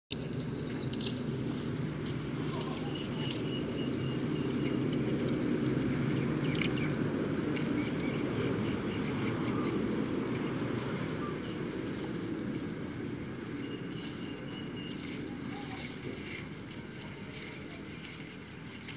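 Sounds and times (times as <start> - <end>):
high-pitched insect drone: 0.1 - 18.9
low rumbling noise: 0.1 - 18.9.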